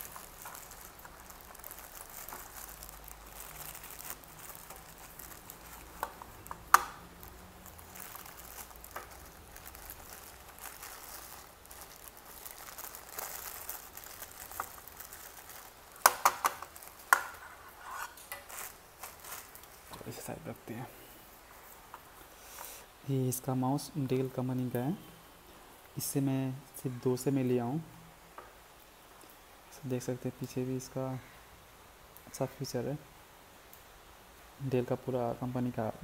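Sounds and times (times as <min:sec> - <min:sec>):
plastic bag crinkling: 0:00.0 - 0:20.8.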